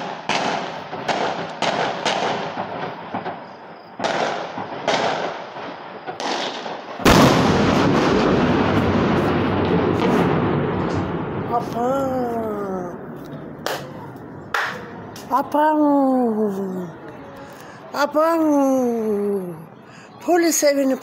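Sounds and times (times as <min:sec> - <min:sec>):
explosive bangs with echo: 0:00.0 - 0:12.3
loud blast: 0:06.2 - 0:15.2
heavy continuous noise: 0:07.0 - 0:21.0.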